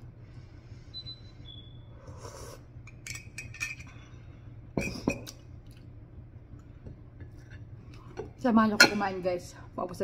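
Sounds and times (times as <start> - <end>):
low steady hum: 0.0 - 10.0
metal spoon clinking ceramic mug: 2.9 - 3.9.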